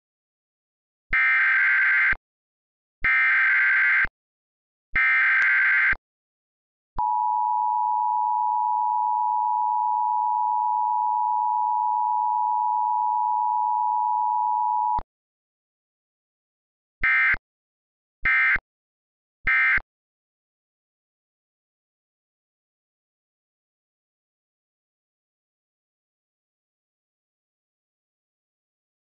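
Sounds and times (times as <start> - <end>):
two-tone alarm tone: 1.1 - 2.2, 3.0 - 4.1, 5.0 - 6.0, 7.0 - 15.0, 17.0 - 17.4, 18.2 - 18.6, 19.5 - 19.8.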